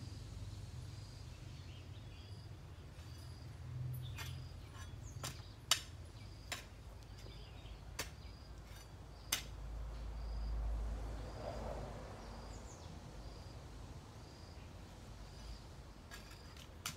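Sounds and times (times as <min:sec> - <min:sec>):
garden hoe chopping into soil: 0:04.1 - 0:09.6, 0:16.1 - 0:16.9.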